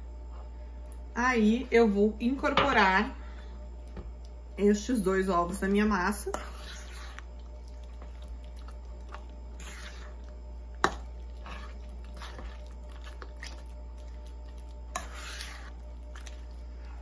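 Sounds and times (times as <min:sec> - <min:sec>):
spoon squishing dough: 0:05.9 - 0:17.0.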